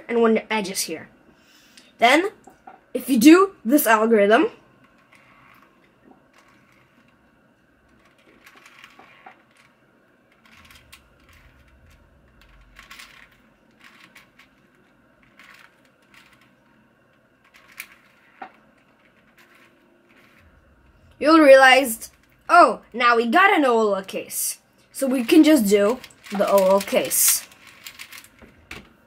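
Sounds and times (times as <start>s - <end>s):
puzzle cube clicking and scraping: 7.9s - 16.6s, 17.4s - 20.6s, 25.0s - 28.4s.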